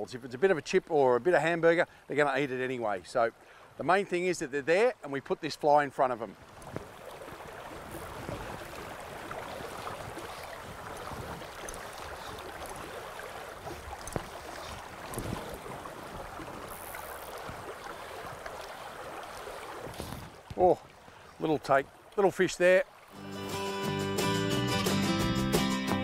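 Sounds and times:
river water rippling over stones: 0:00.0 - 0:23.4
faint clicks: 0:11.5 - 0:12.8, 0:13.9 - 0:15.3.

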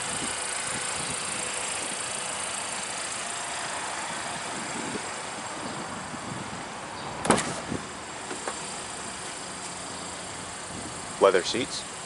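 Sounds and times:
vehicle hum: 0:00.0 - 0:12.0
car door latch click: 0:07.2 - 0:07.6.

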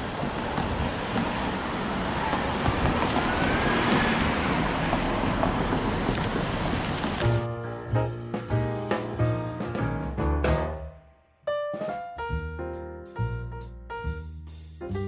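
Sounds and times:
cars driving past: 0:00.0 - 0:07.4.

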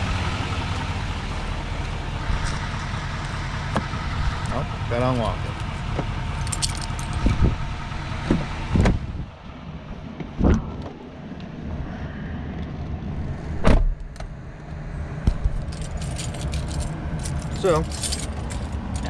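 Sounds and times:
keys jangling and clicking: 0:06.4 - 0:07.3, 0:15.6 - 0:19.0
heavy thumps of truck door: 0:13.6 - 0:14.0.

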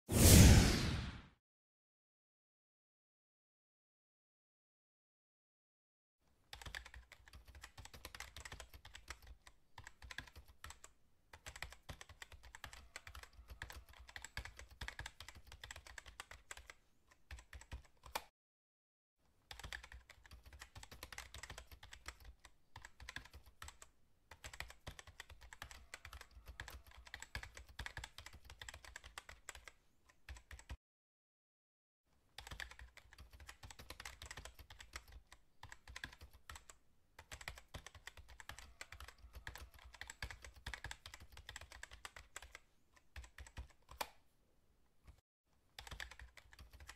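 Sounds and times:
keyboard typing clicks: 0:32.4 - 0:44.2, 0:45.8 - 0:46.9.

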